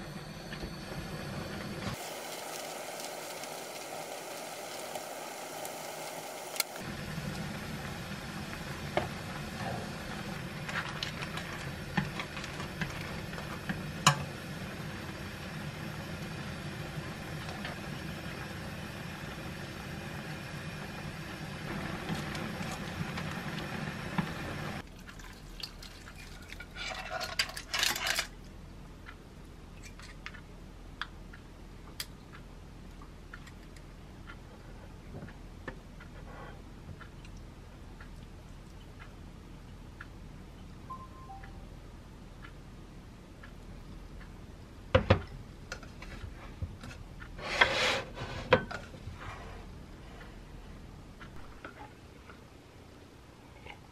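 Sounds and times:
pot boiling and bubbling: 0:00.0 - 0:28.5.

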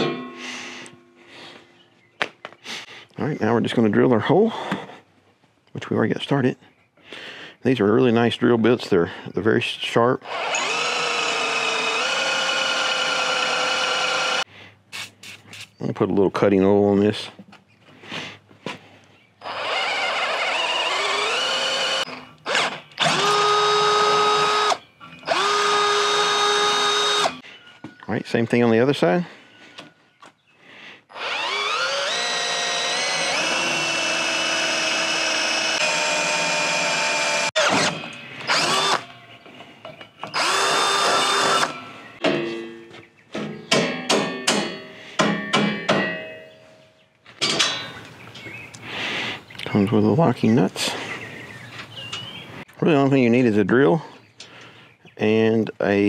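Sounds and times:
cordless drill boring metal: 0:10.2 - 0:14.5, 0:19.4 - 0:27.4, 0:31.1 - 0:39.1, 0:40.2 - 0:41.9
mallet striking steel: 0:43.7 - 0:46.6.

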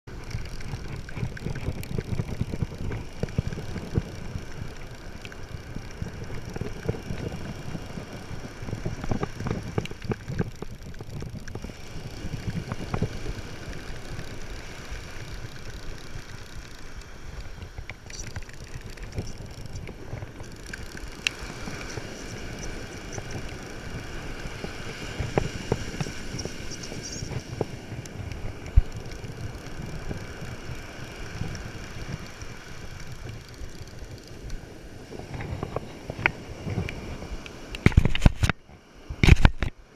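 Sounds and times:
fishing reel clicking: 0:00.1 - 0:34.6
wind buffeting microphone: 0:00.1 - 0:39.7.

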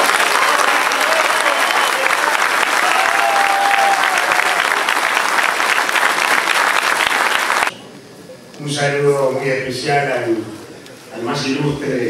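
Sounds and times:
crowd applauding: 0:00.0 - 0:07.7.

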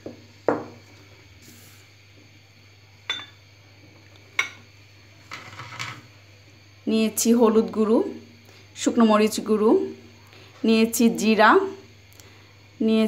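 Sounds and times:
ceramic clinks: 0:03.1 - 0:03.4
bowl scraping on countertop: 0:05.2 - 0:06.1.

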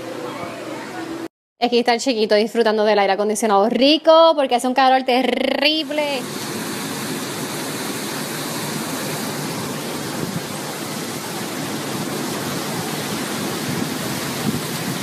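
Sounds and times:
strong wind through palm trees: 0:06.0 - 0:15.0.

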